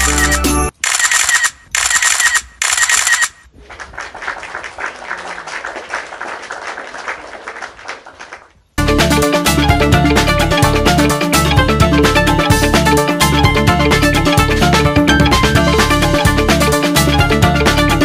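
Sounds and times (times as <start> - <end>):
choppy background music: 8.8 - 18.0.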